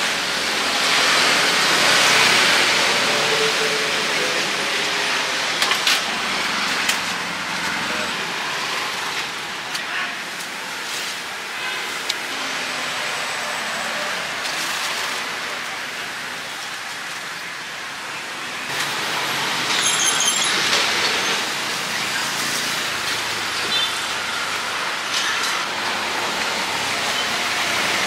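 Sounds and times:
street traffic noise: 0.0 - 28.0
leaves and plastic bags rustling: 5.4 - 17.9, 18.7 - 28.0.

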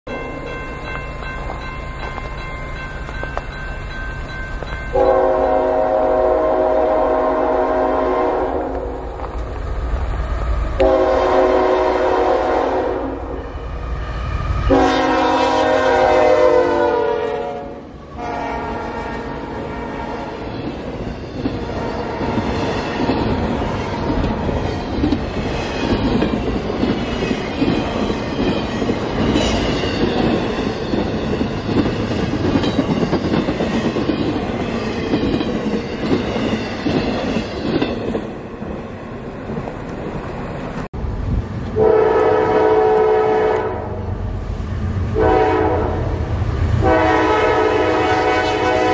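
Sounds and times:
locomotive horn: 4.9 - 9.0, 10.8 - 13.5, 14.7 - 20.5, 41.8 - 44.1, 45.2 - 46.2, 46.8 - 48.9
train wheels clattering over rails: 20.5 - 38.4.

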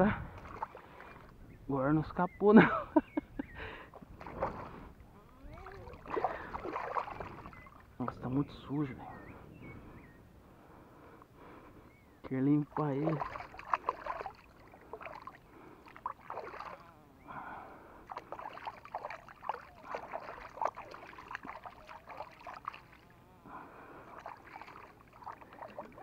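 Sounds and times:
shallow water splashing: 0.0 - 1.5, 3.7 - 8.2, 12.5 - 26.0.

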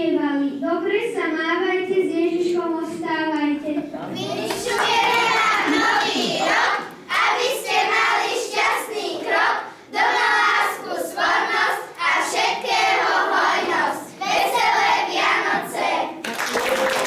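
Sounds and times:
children singing in unison: 4.2 - 16.2.

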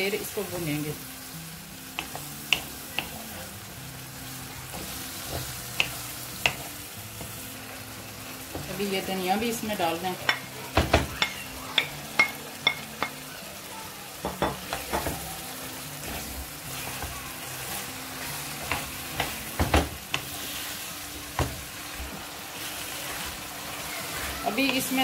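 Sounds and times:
curry sizzling in a pan: 0.0 - 25.0
wooden spoon knocking on pan: 4.7 - 7.3, 10.3 - 13.1, 14.2 - 15.2, 18.6 - 20.3, 21.3 - 21.7.

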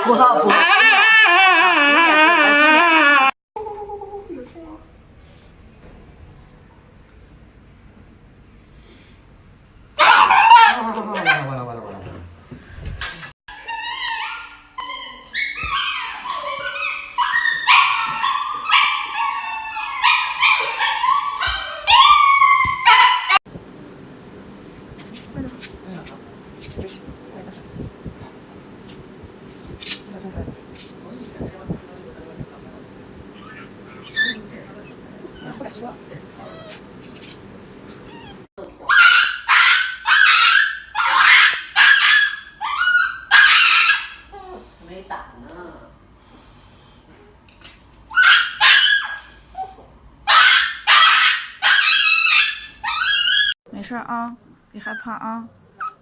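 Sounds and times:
puppy yelping: 0.0 - 3.4, 10.0 - 11.5, 13.5 - 23.4, 33.4 - 34.4, 36.4 - 36.8, 38.1 - 44.2, 48.1 - 53.6, 54.8 - 56.0.

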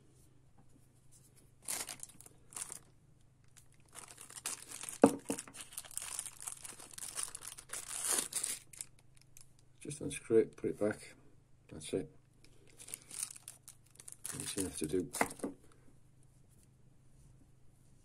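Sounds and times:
plastic bag crinkling: 1.6 - 9.6, 12.6 - 15.5.

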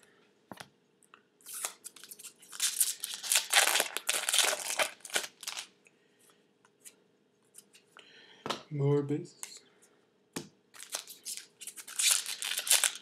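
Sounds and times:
foil wrapper crinkling and tearing: 1.4 - 5.7, 10.8 - 13.0.

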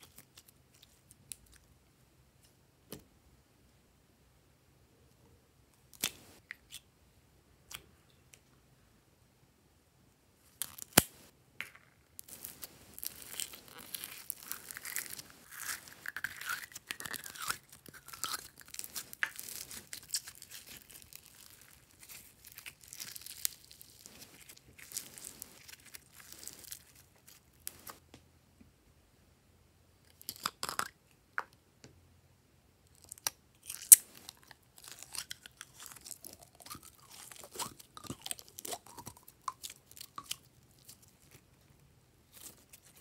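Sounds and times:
slime crackling and crunching: 12.2 - 28.0, 33.1 - 41.4.

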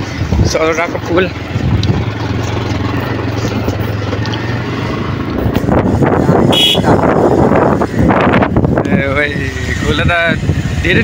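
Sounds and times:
motorcycle engine running: 0.0 - 11.0
horn toot: 6.5 - 7.0.

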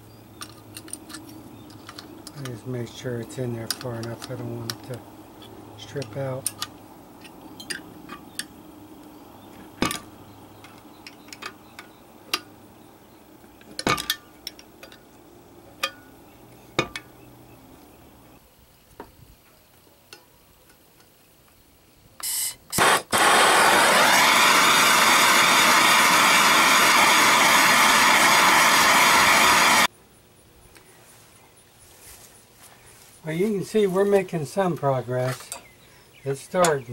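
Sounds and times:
metal tools clinking: 6.0 - 8.4
short bursts of noise: 22.2 - 29.9
loud steady machine noise: 22.8 - 29.9.

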